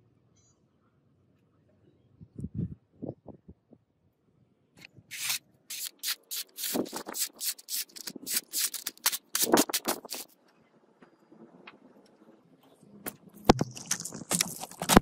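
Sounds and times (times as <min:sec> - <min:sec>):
knife slicing paper: 0:05.1 - 0:10.4.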